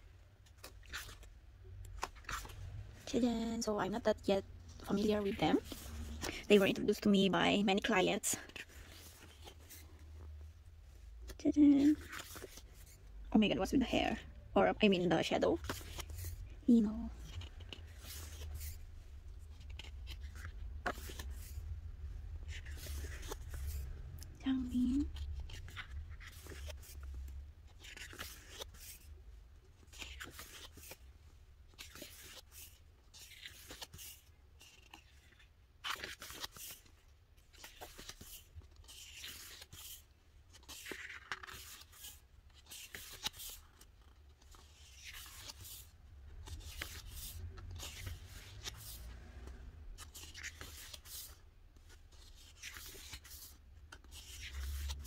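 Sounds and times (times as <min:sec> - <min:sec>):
paper rustling: 0:00.4 - 0:04.0, 0:04.8 - 0:13.0, 0:15.1 - 0:21.8, 0:22.4 - 0:24.0, 0:24.6 - 0:55.0
pages turning swish: 0:05.0 - 0:06.6, 0:17.2 - 0:18.8, 0:19.4 - 0:21.7, 0:22.4 - 0:24.0, 0:37.5 - 0:51.4, 0:52.2 - 0:55.0.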